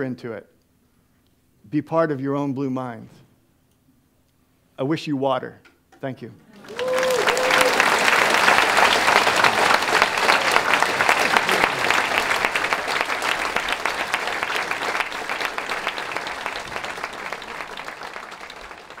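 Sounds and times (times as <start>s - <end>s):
audience applauding: 6.5s - 19.0s.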